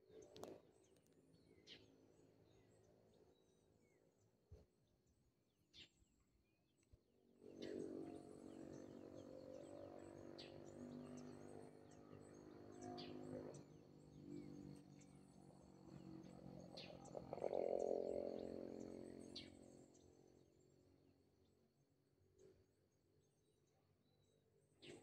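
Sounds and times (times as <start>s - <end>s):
low even drone: 7.5s - 20.1s.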